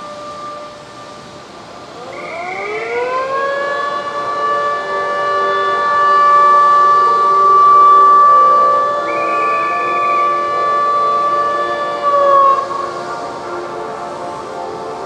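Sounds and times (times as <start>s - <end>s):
siren winding up: 2.1s - 12.6s.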